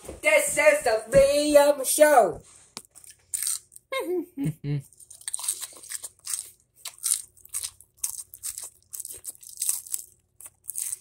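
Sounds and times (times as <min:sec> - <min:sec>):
lettuce crunching while chewed: 0:02.8 - 0:03.9, 0:04.9 - 0:11.0.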